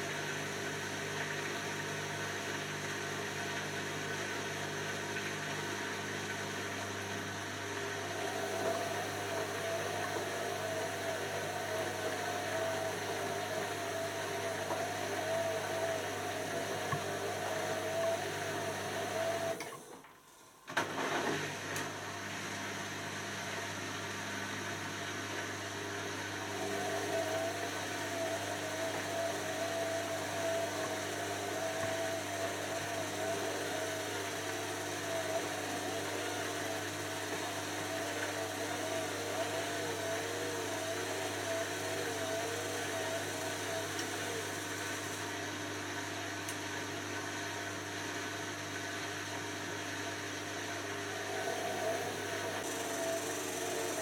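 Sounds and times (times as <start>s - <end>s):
washing machine humming and whining: 0.0s - 54.0s.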